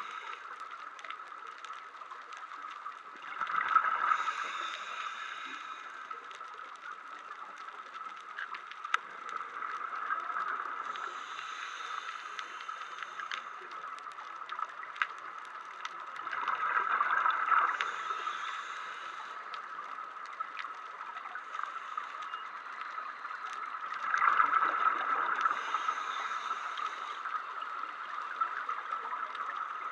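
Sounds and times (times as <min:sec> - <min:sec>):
underwater hiss: 0:00.0 - 0:01.8, 0:02.5 - 0:08.0, 0:09.3 - 0:14.2, 0:16.2 - 0:29.9
small underwater clicks: 0:00.0 - 0:29.9
scuba regulator breathing: 0:04.1 - 0:06.2, 0:10.9 - 0:13.8, 0:17.7 - 0:19.6, 0:25.4 - 0:27.4.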